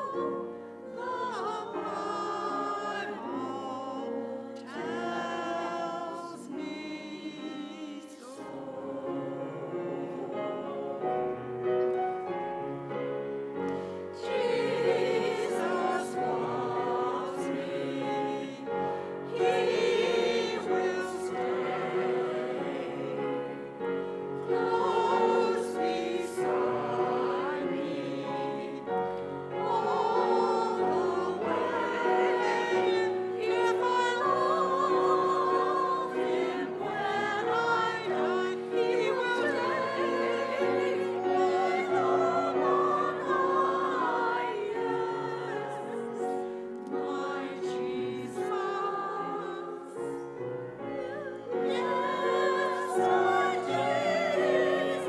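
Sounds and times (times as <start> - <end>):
church choir singing: 0.0 - 55.0.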